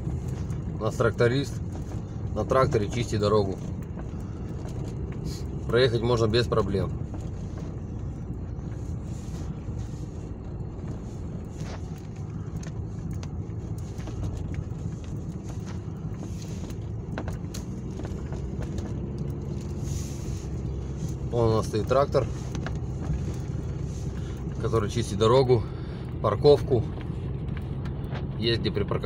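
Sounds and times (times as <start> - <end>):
car engine and road rumble: 0.0 - 29.0
faint clicks and knocks: 10.3 - 19.8, 20.5 - 25.1.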